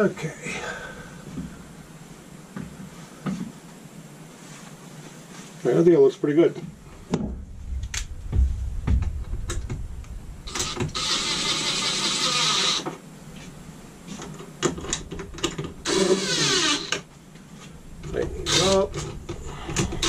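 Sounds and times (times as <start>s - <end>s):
handling knocks: 7.0s - 11.0s
cordless drill whirring: 10.6s - 12.9s, 15.9s - 17.0s.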